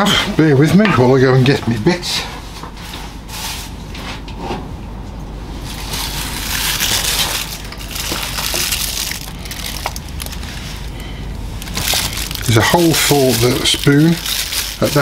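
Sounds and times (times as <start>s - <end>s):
rustling handling noise: 5.5s - 15.0s.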